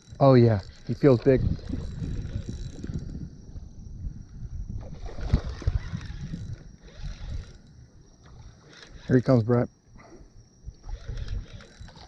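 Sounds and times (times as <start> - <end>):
wind buffeting microphone: 0.0 - 7.9, 10.6 - 12.0.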